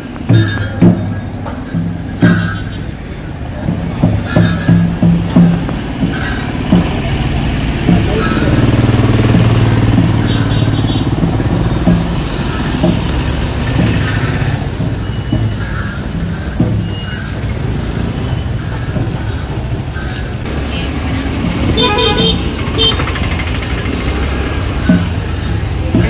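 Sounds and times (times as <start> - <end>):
vehicle engines running: 0.0 - 26.0
car horn toots: 10.1 - 11.2, 21.7 - 23.2.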